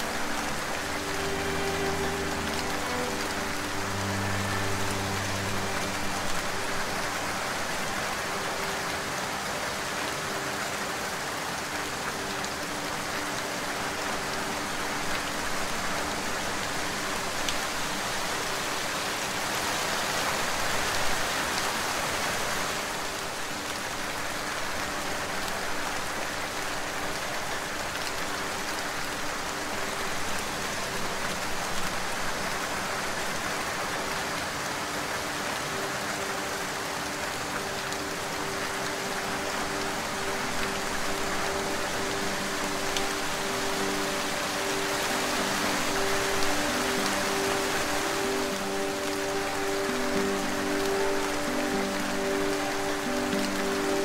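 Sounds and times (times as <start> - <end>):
dense rain falling: 0.0 - 54.0.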